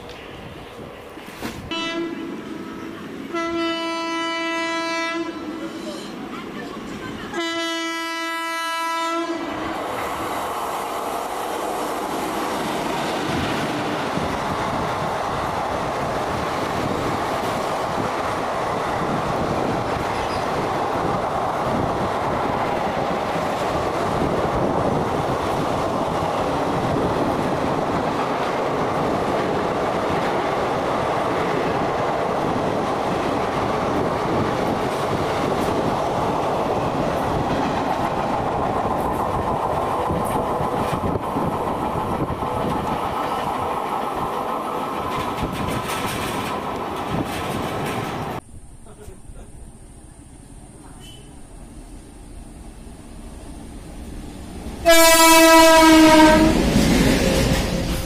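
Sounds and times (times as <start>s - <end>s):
locomotive horn blast: 1.6s - 2.4s, 3.3s - 6.1s, 7.3s - 9.6s, 54.8s - 56.6s
train wheels clattering over rails: 9.7s - 49.2s, 53.8s - 58.0s.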